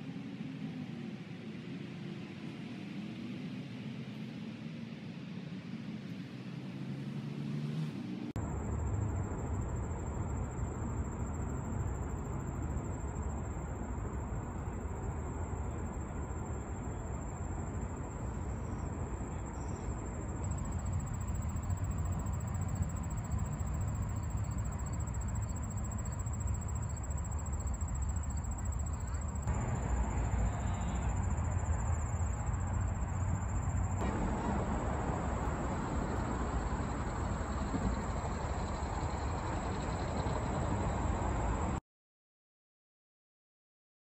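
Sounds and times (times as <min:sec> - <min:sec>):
steady low rumble: 0:18.1 - 0:41.8.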